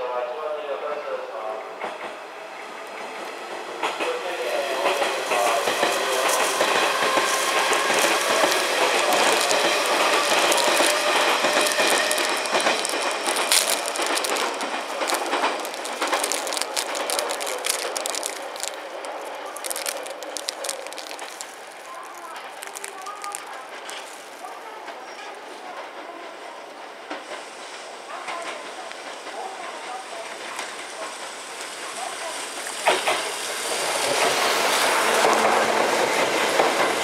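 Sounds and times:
electric train rolling: 2.2s - 22.4s
wheels clicking over rail joints: 4.9s - 24.8s.

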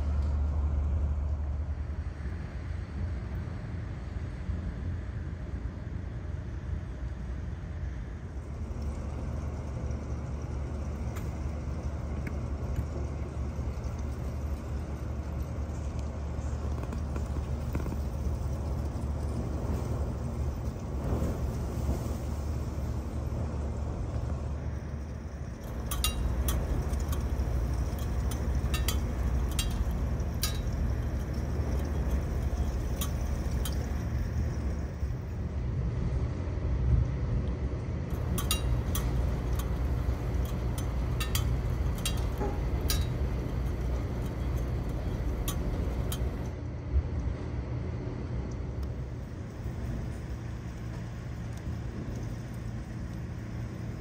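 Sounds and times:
raindrops ticking: 8.7s - 19.4s, 25.5s - 35.1s, 38.1s - 46.5s.

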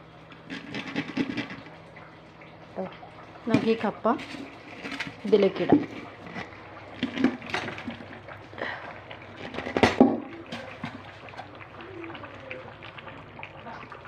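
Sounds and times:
food clattering into metal pot: 0.4s - 1.7s, 3.5s - 8.2s, 9.4s - 11.5s.

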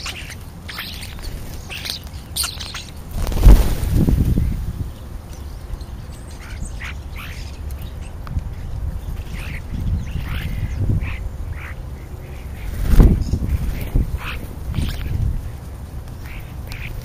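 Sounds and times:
starlings calling: 0.0s - 17.0s
steady low rumble: 2.9s - 17.0s
flurry of birds landing: 3.1s - 4.8s.

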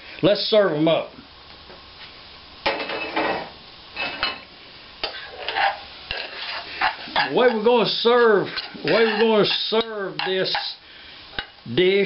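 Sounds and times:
cutlery scraping and clinking crockery: 5.0s - 7.6s, 8.6s - 10.8s.

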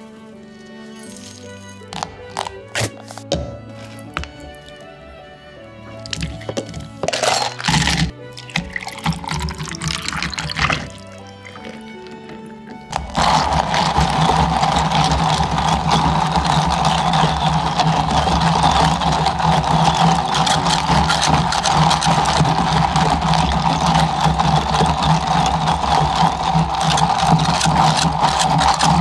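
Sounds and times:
drink mixer motor whirring: 6.0s - 29.0s.

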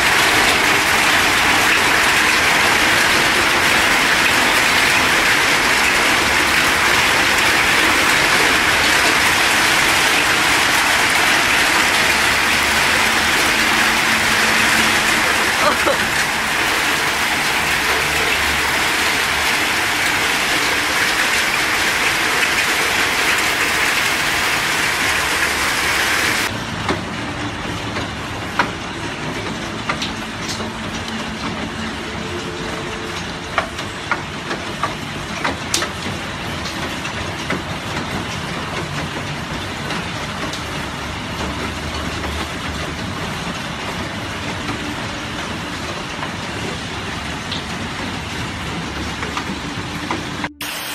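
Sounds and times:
hailstones clicking: 0.0s - 26.6s
hail and rain falling: 0.0s - 50.9s.

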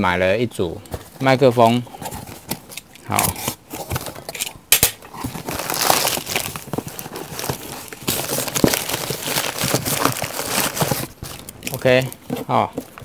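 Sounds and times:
packaging rustling and crinkling: 0.9s - 13.0s.

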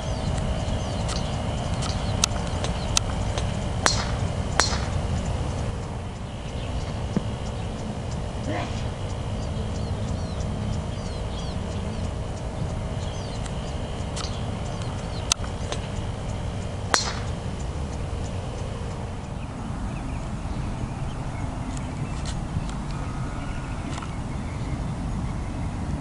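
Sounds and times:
golf clubs striking balls: 0.0s - 19.4s
birds chirping: 0.0s - 26.0s
low outdoor rumble: 0.0s - 26.0s.

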